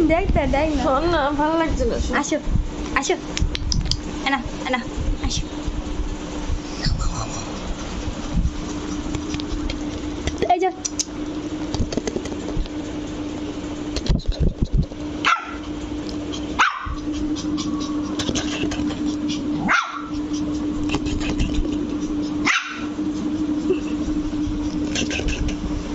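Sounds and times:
steady low hum: 0:00.0 - 0:25.9
puppy barking high-pitched: 0:15.2 - 0:15.6, 0:16.5 - 0:17.8, 0:19.6 - 0:20.4, 0:22.4 - 0:23.0.

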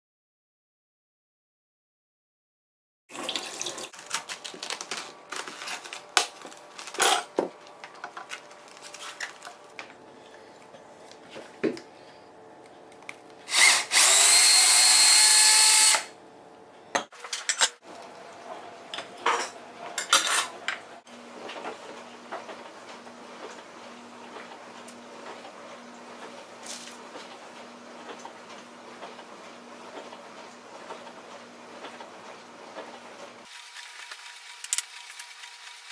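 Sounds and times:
cabbage leaves crackling: 0:03.9 - 0:07.2
cordless drill running: 0:13.5 - 0:16.2.

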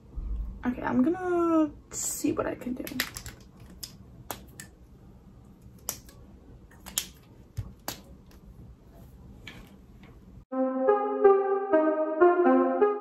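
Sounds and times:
low room hum: 0:00.0 - 0:10.5
plastic packaging clicks and taps: 0:02.9 - 0:04.7.

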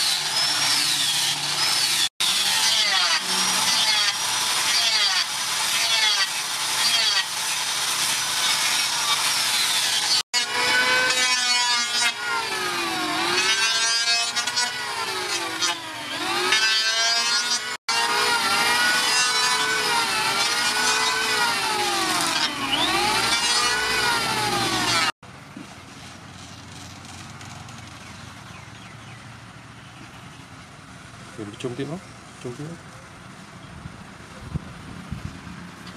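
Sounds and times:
angle grinder sanding wood: 0:00.0 - 0:25.2
electric hand planer whining: 0:00.0 - 0:25.2.

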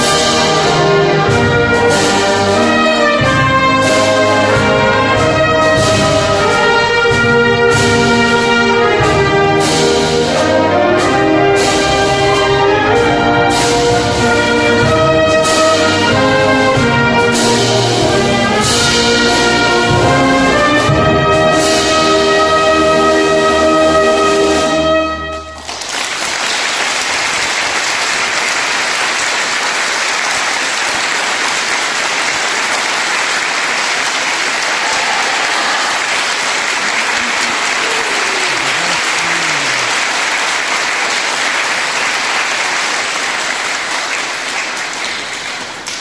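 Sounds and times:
audience applause: 0:25.6 - 0:46.0.

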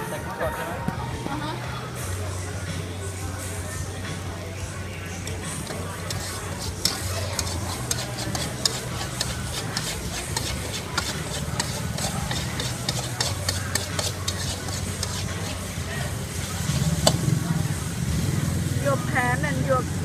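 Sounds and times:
metal spatula scraping a wok: 0:05.6 - 0:17.3.

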